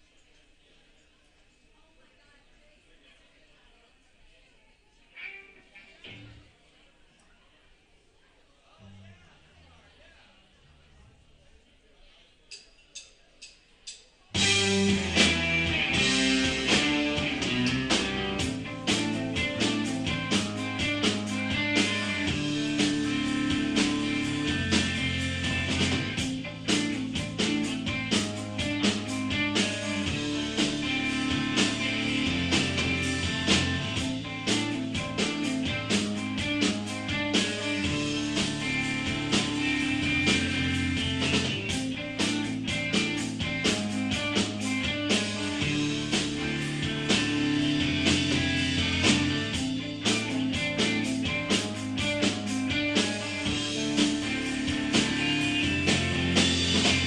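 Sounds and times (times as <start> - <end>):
drum beat: 14.4 - 57.0
electric guitars and bass: 14.4 - 57.0
rock band playing live: 14.4 - 57.0.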